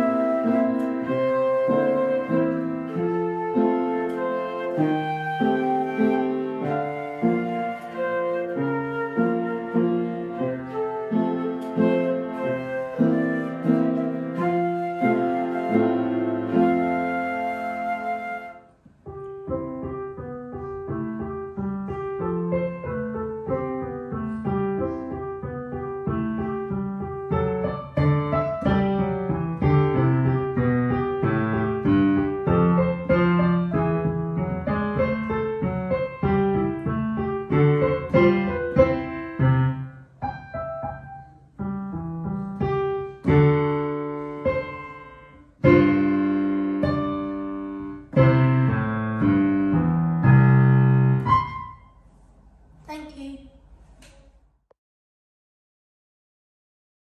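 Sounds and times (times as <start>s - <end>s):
flute playing long notes: 0.0s - 18.7s
digital piano melody: 0.0s - 52.0s.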